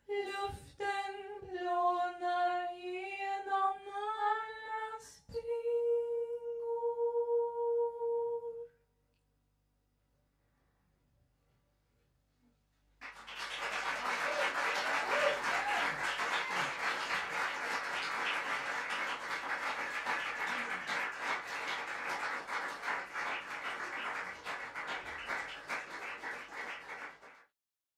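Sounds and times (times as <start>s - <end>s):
audience applauding: 13.0s - 27.5s.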